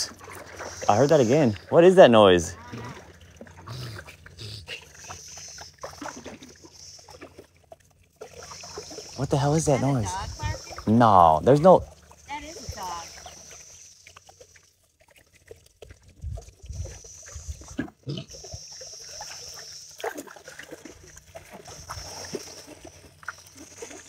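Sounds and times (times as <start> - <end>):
water sloshing and trickling: 0.0 - 24.0
animal calls from woods: 8.4 - 14.0.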